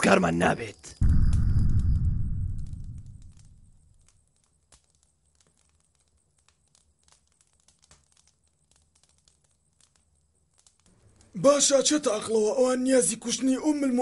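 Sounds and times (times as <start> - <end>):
soft clicks and crackles: 0.8 - 11.6
faint low hum: 1.0 - 4.0.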